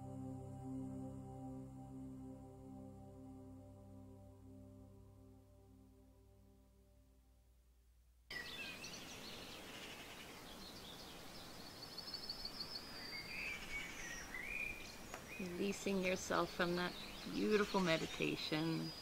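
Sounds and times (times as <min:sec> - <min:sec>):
ambient music with held tones: 0:00.0 - 0:07.2
background hiss: 0:08.3 - 0:19.0
birds singing: 0:08.3 - 0:19.0.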